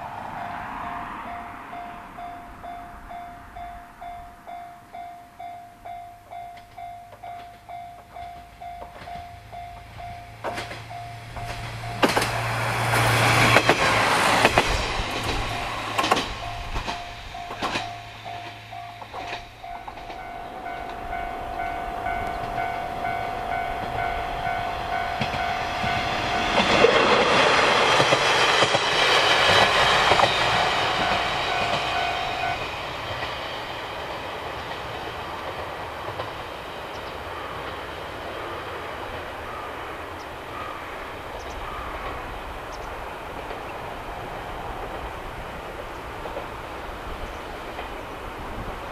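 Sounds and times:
railcar engine hum: 0.0 - 48.9
high ringing tone: 0.4 - 12.4, 14.8 - 27.1, 28.9 - 34.1
train wheels clacking over rail joints: 9.9 - 48.9.

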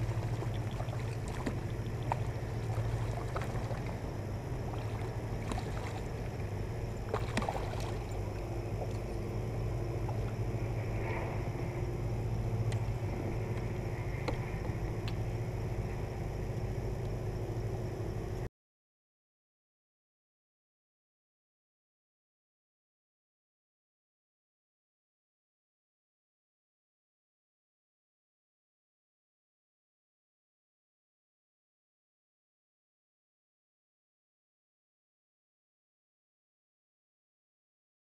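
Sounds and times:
water splashing and sloshing: 0.0 - 17.6
steady low hum: 0.0 - 18.5.

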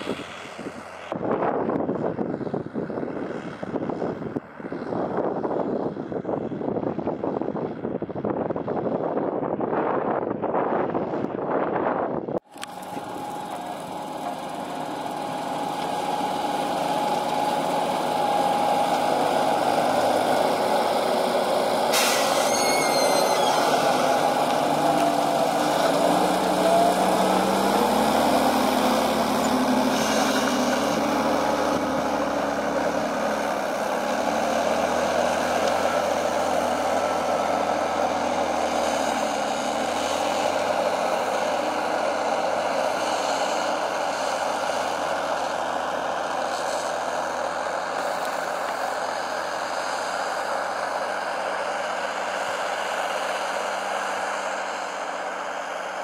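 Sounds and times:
tractor diesel engine running: 12.4 - 56.0.

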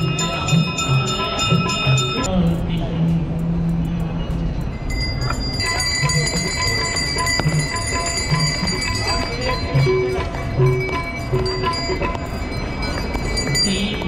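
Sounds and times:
hand bells ringing rapidly: 0.0 - 2.3, 4.4 - 14.0.

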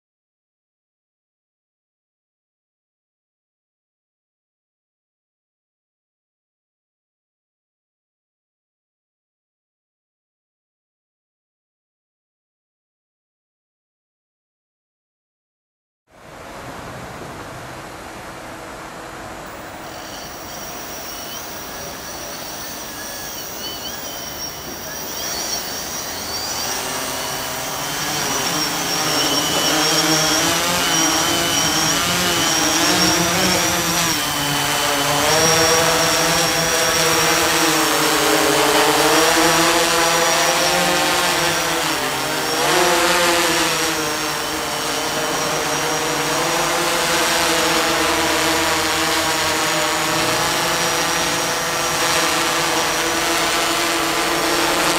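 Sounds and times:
drone propellers whirring: 19.5 - 54.9.

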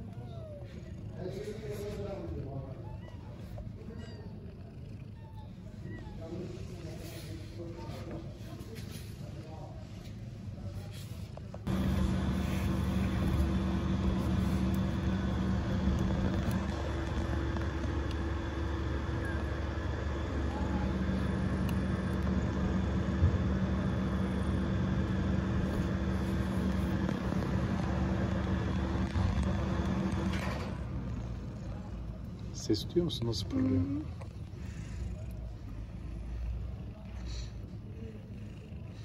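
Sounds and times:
machine drone with low rumble: 11.4 - 39.0.

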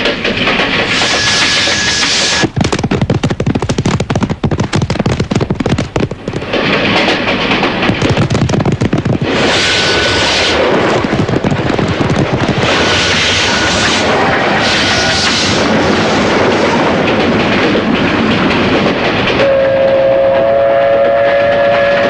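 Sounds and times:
train running on rails: 0.0 - 22.0
horses galloping: 2.0 - 14.5.

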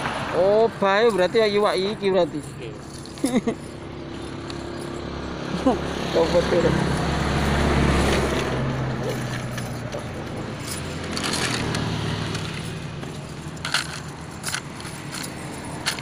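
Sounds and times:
low engine hum: 0.0 - 16.0
metal chain clinking: 0.5 - 16.0.

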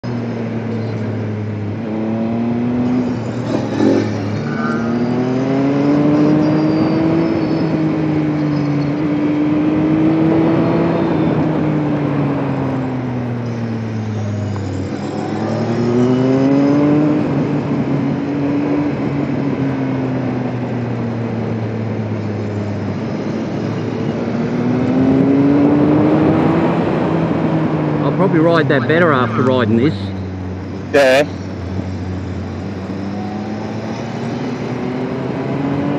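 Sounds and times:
wind and road rush: 0.0 - 35.9
motorcycle engine revving: 1.8 - 19.4, 20.2 - 28.8.

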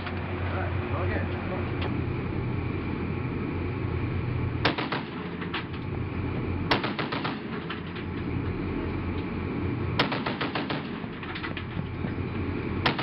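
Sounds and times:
steady low rumble: 0.0 - 13.0
machine gun firing bursts: 4.6 - 5.3, 6.7 - 7.6, 10.0 - 11.1.

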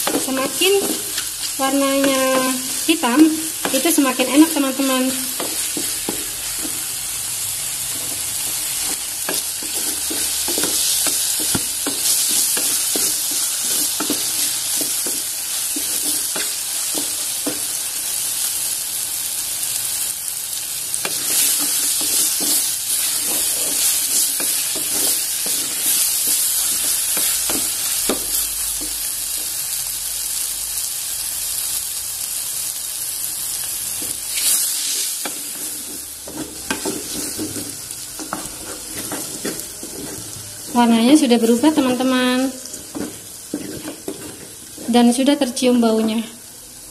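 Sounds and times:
wooden spatula stirring and scraping: 0.0 - 7.0, 7.8 - 17.8, 21.0 - 28.2, 34.0 - 45.2
mushrooms sizzling in a metal pot: 0.0 - 46.9.

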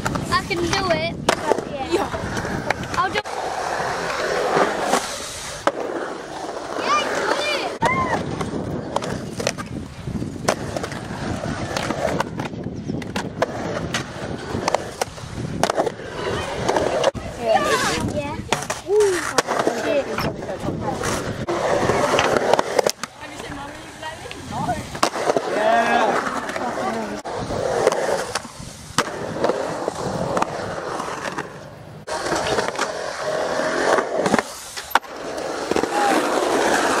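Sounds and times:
skateboard clacking on concrete: 0.0 - 3.3, 6.8 - 27.2
skateboard wheels rolling on concrete: 0.0 - 37.0.

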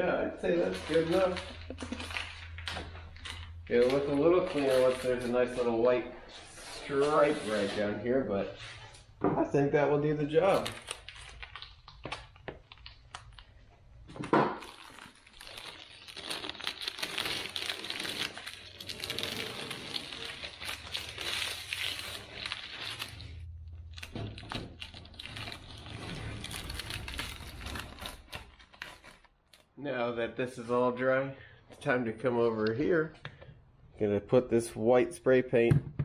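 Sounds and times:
tape peeling and crinkling: 0.4 - 7.9, 10.2 - 29.7.

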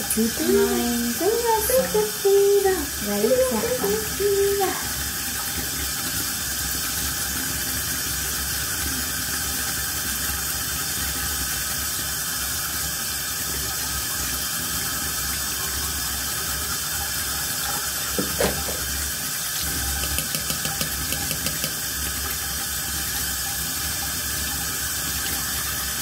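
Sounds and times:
tap running into sink: 17.6 - 23.2
teeth being brushed: 20.0 - 21.8.

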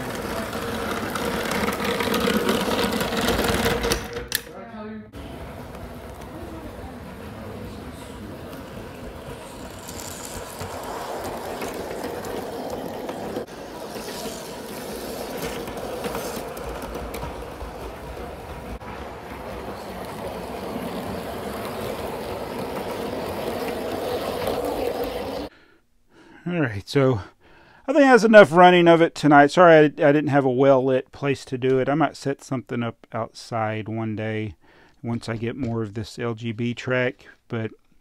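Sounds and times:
model train motor whirring: 0.0 - 4.0, 5.6 - 18.6, 19.8 - 25.5
wheels rumbling on rails: 0.0 - 4.0, 5.2 - 25.5.

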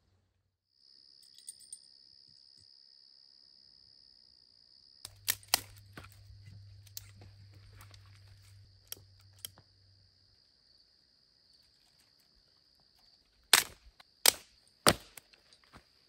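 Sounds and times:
insect trill: 0.7 - 16.0
twig snaps: 5.0 - 9.6, 13.5 - 15.6
dry sticks cracking: 5.1 - 9.6, 13.5 - 15.6.

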